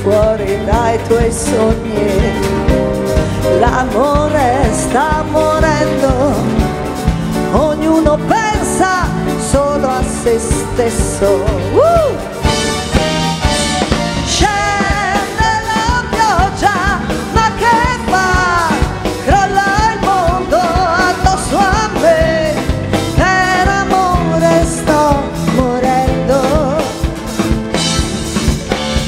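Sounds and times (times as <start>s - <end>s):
woman singing into microphone: 0.0s - 12.4s, 14.2s - 27.1s
live rock band: 0.0s - 29.0s
drum beat: 11.8s - 29.0s.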